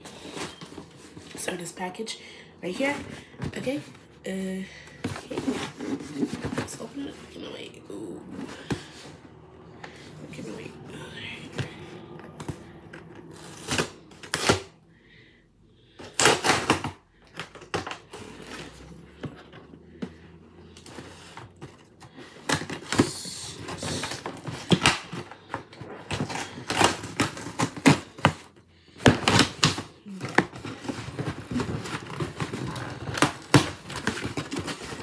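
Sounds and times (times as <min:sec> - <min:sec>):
cardboard box packaging rustling: 0:00.0 - 0:01.8, 0:02.6 - 0:14.8, 0:15.9 - 0:35.0.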